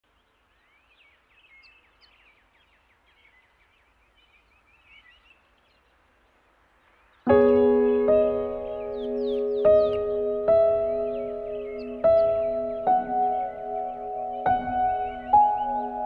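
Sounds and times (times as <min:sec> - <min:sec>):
faint birdsong: 0:00.0 - 0:16.0
music with loud held chord: 0:07.3 - 0:16.0.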